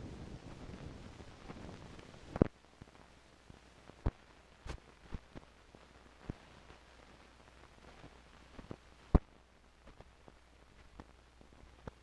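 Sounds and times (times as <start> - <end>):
faint hiss: 0.0 - 12.0
film clicks and pops: 3.5 - 6.8, 7.7 - 12.0.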